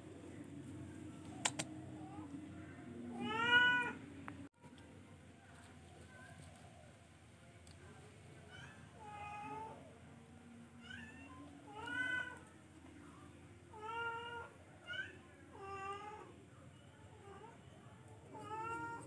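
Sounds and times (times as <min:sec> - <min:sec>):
young cats meowing: 0:03.1 - 0:04.0, 0:10.8 - 0:12.5, 0:18.3 - 0:19.0.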